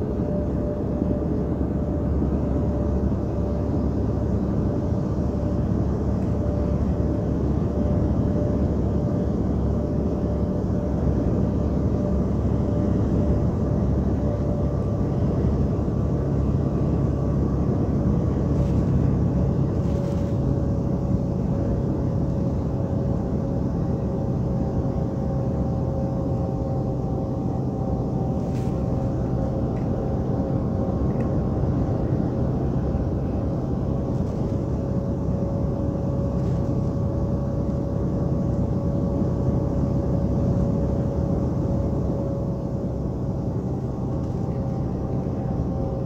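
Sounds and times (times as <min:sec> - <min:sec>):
faint steady whine: 0:00.0 - 0:46.0
truck engine and tyre rumble: 0:00.0 - 0:46.0.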